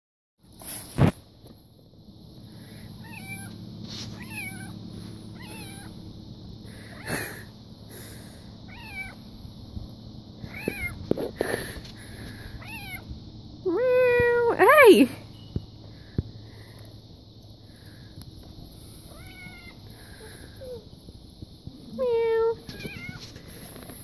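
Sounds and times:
kitten meowing: 8.7s - 9.2s, 10.5s - 11.0s, 21.9s - 23.2s.

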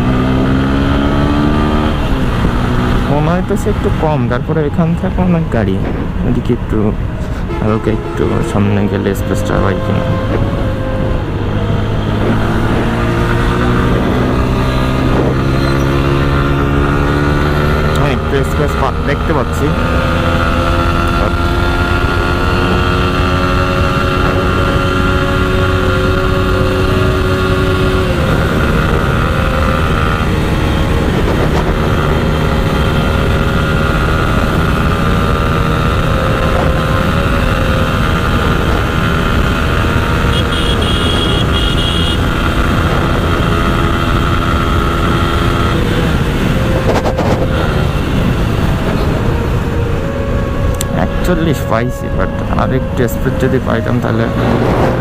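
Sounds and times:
motorcycle engine running hard: 0.0s - 55.0s
wind rush on microphone: 1.9s - 8.7s, 9.9s - 17.2s, 21.0s - 40.2s, 42.2s - 51.1s, 54.2s - 55.0s.

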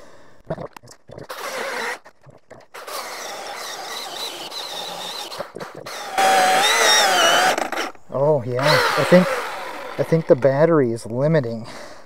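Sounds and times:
cordless chainsaw cutting log: 1.3s - 2.0s, 2.8s - 10.6s.

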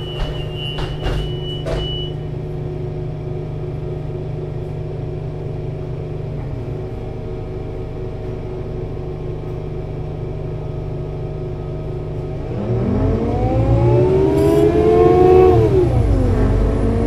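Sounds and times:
bus diesel engine idling: 0.0s - 12.4s.

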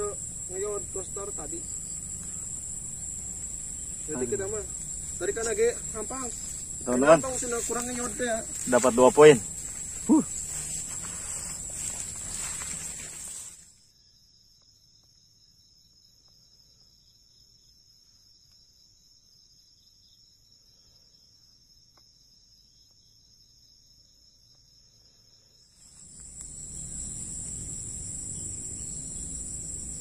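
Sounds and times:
insects shrilling: 0.0s - 13.8s, 25.8s - 30.0s.

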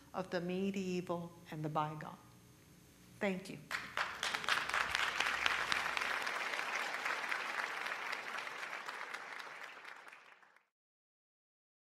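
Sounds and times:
audience applauding: 3.7s - 10.7s.

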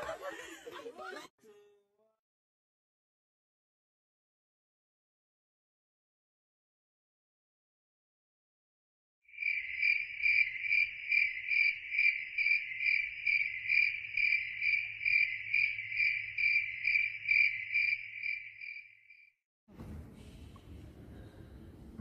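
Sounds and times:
cricket chirping: 9.3s - 19.3s.

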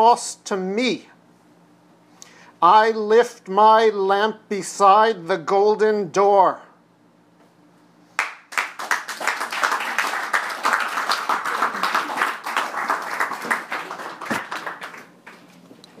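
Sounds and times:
audience applauding: 8.2s - 15.6s.

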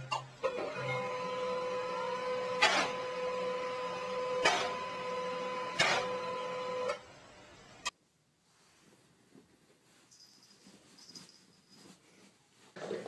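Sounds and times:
small machine whining: 0.0s - 7.9s.

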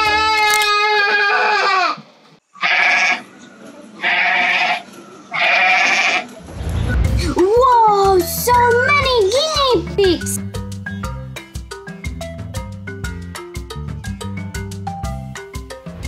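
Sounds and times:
sheep bleating: 2.6s - 3.3s, 4.0s - 6.3s
children's song: 7.2s - 10.4s.

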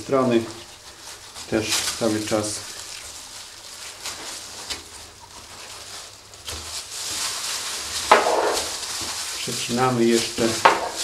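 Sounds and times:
person speaking: 0.0s - 0.7s, 1.5s - 2.9s, 9.4s - 11.0s.

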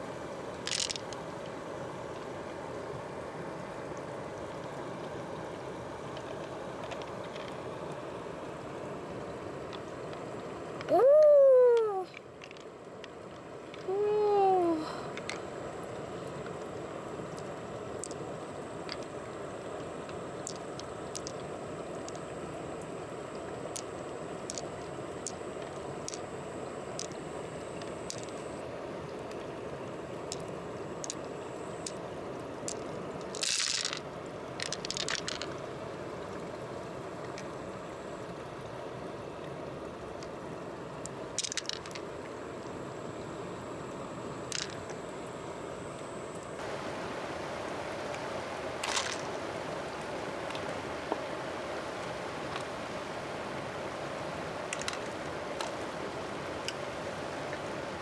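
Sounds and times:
flowing water: 0.0s - 58.0s
light clicks of beads: 32.6s - 34.0s, 34.6s - 35.6s.

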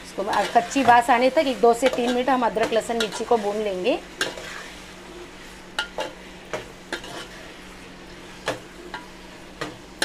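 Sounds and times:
meat sizzling in oil: 0.0s - 10.0s
spoon scraping a steel pot: 6.9s - 7.4s.

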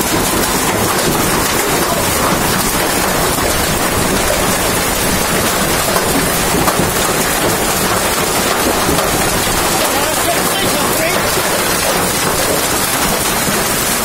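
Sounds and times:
heavy rain with hail: 0.0s - 14.0s.

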